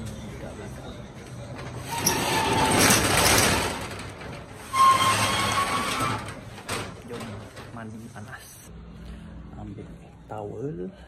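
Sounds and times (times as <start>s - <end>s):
metal roller shutter rattling: 1.3s - 8.0s.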